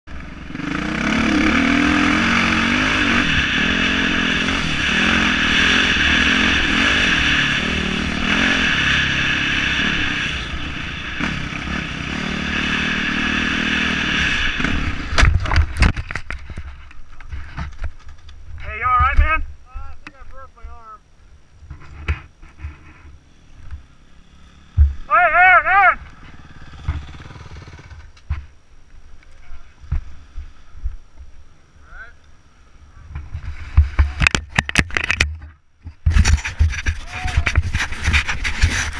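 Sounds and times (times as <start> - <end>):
dirt bike engine revving: 0.1 - 16.2, 22.4 - 28.2.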